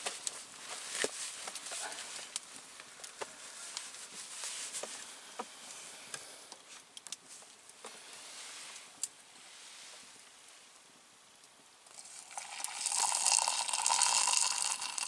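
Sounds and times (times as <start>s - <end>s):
wood fire crackling and popping: 6.5s - 8.0s.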